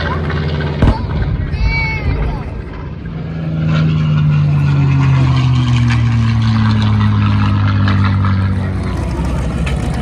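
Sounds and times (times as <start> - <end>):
aircraft engine droning: 0.0 - 10.0.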